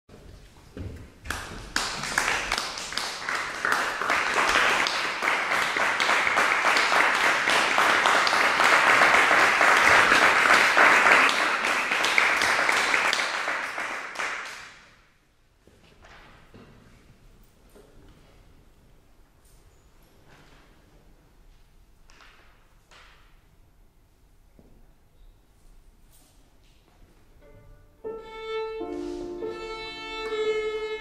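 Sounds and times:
audience applauding: 0:01.3 - 0:14.8.

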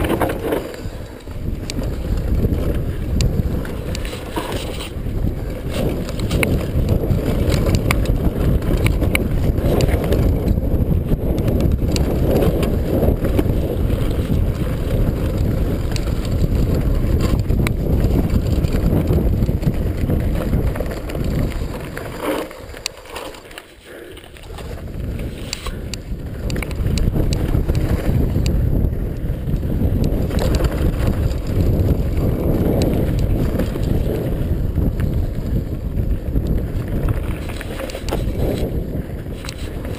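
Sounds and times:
bike clattering over bumps: 0:00.0 - 0:23.6, 0:24.4 - 0:39.9
tyres rolling over dirt: 0:00.0 - 0:39.9
wind buffeting microphone: 0:00.0 - 0:39.9.

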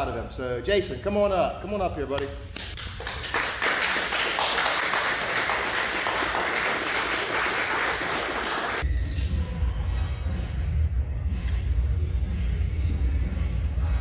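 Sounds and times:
people clapping: 0:02.6 - 0:08.8.

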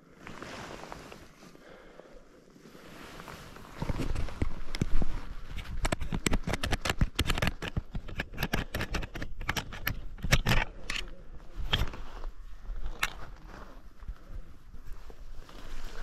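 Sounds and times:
handling noise on camera: 0:03.3 - 0:13.9.

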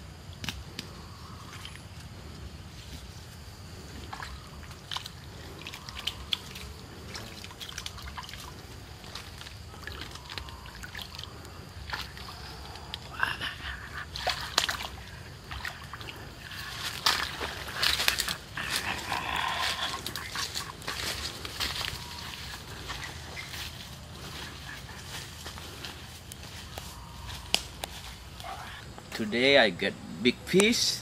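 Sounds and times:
water splashing as man wades: 0:03.9 - 0:12.4, 0:14.1 - 0:19.0, 0:19.6 - 0:25.4.

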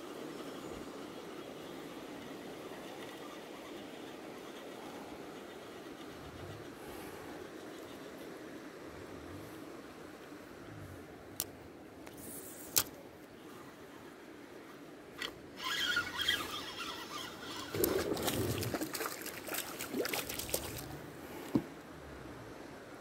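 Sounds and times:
sharp click: 0:12.1 - 0:13.0
fishing reel winding: 0:15.2 - 0:18.5
fish splashing in water: 0:17.0 - 0:21.0.

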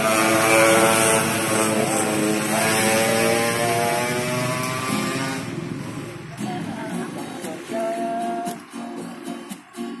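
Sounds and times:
vehicle engine passing: 0:00.0 - 0:09.4.

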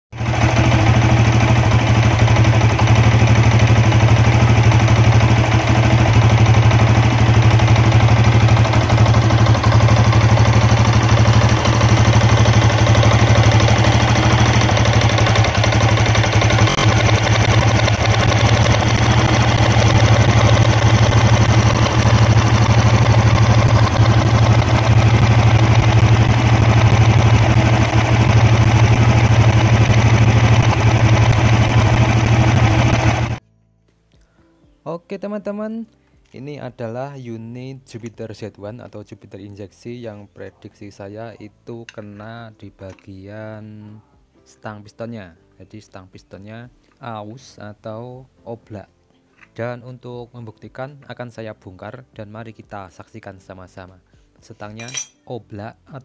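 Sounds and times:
motorcycle engine running: 0:00.1 - 0:33.4
rhythmic engine knock: 0:00.2 - 0:33.4.

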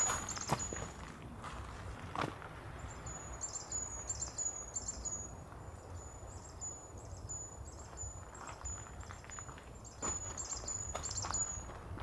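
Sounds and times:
songbird chirping: 0:00.0 - 0:01.1, 0:02.7 - 0:11.8.

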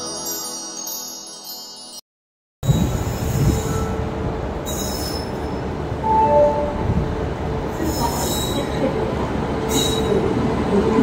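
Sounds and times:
wheels rumbling on rails: 0:02.6 - 0:11.0
high-pitched wheel squeals: 0:04.6 - 0:06.8
two-note tone: 0:06.0 - 0:07.1.

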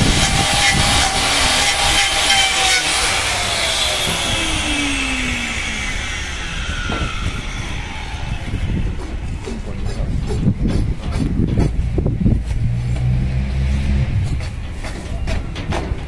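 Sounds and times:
angle grinder whining: 0:00.0 - 0:10.7.

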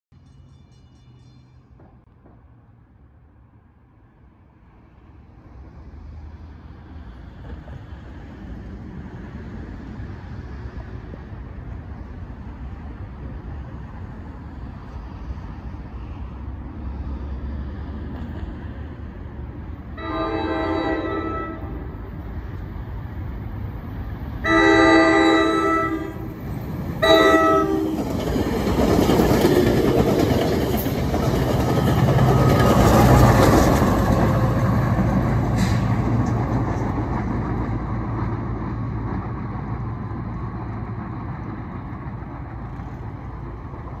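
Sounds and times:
train wheels rumbling on rails: 0:05.5 - 0:44.0
train horn blasts: 0:20.0 - 0:22.0, 0:24.4 - 0:26.3, 0:27.0 - 0:28.1.

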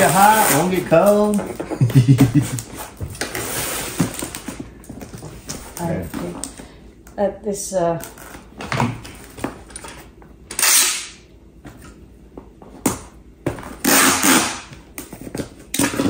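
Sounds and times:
packing tape pulled off dispenser: 0:10.5 - 0:11.2, 0:13.7 - 0:15.1.

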